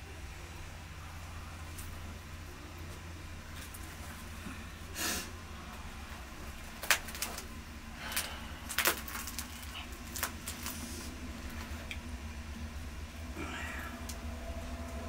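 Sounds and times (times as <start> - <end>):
low steady hum: 0.0 - 15.0
flatbread tearing and rustling: 6.5 - 11.9.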